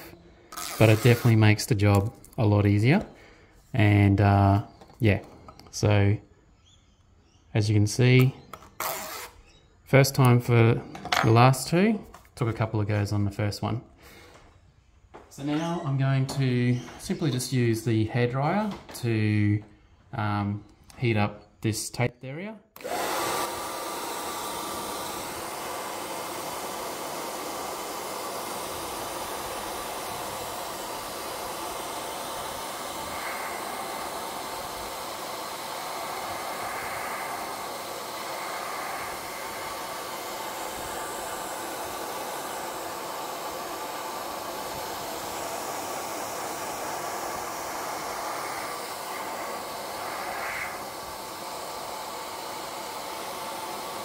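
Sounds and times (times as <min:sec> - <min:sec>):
hair dryer blowing: 0:00.0 - 0:03.2, 0:22.8 - 0:54.0.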